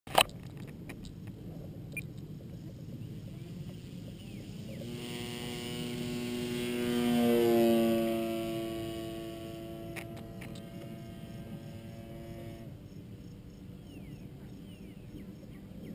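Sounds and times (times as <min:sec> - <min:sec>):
model plane motor whine: 0:02.7 - 0:12.8.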